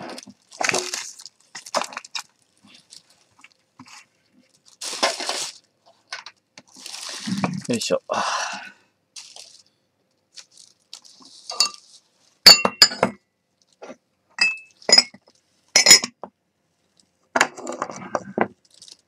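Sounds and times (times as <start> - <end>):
ceramic mugs clinking: 11.5 - 11.8, 12.5 - 13.2, 14.4 - 15.2, 15.8 - 16.2.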